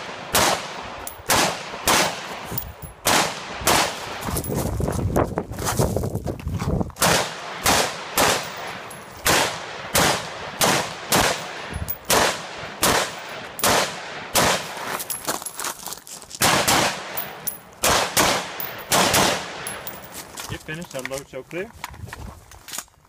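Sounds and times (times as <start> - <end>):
rifle single shots: 0.0 - 4.2, 7.0 - 14.9, 16.4 - 20.0.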